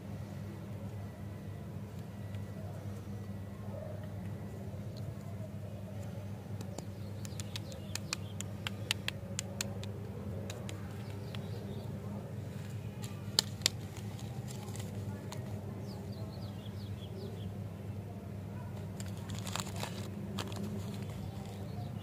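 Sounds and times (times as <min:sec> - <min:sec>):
steady low hum: 0:00.0 - 0:22.0
birds chirping faintly: 0:00.4 - 0:22.0
wrapped lollipops clicking: 0:06.6 - 0:11.6, 0:13.0 - 0:15.5, 0:18.8 - 0:21.7.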